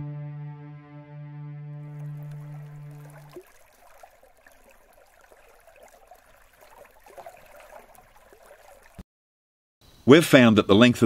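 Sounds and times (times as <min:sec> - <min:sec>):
sustained music chord: 0:00.0 - 0:03.3
water trickling and gurgling: 0:01.8 - 0:09.0.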